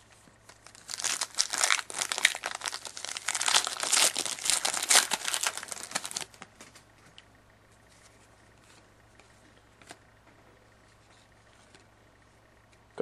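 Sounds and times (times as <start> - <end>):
wrapper crinkling and tearing: 0.4 - 6.4.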